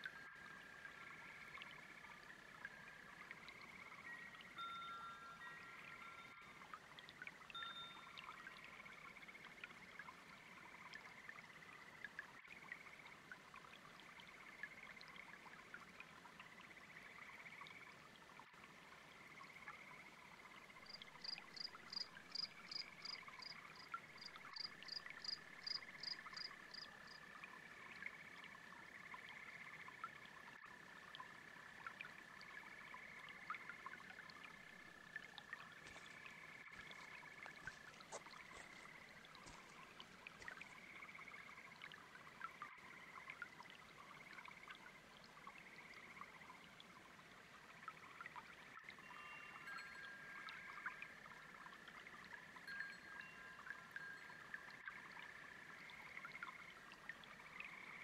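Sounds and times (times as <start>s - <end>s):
babbling brook: 0.0s - 58.0s
frogs and toads calling: 19.2s - 30.1s, 30.8s - 43.4s, 52.3s - 58.0s
crickets: 20.8s - 27.2s, 52.6s - 56.7s.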